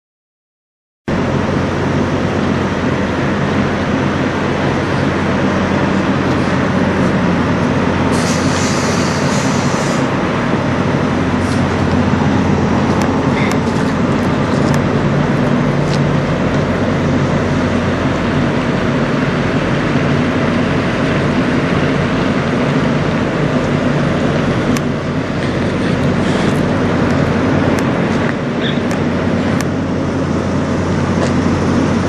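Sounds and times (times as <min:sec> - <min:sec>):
truck diesel engine idling: 0:01.1 - 0:32.0
air hiss: 0:08.1 - 0:10.1.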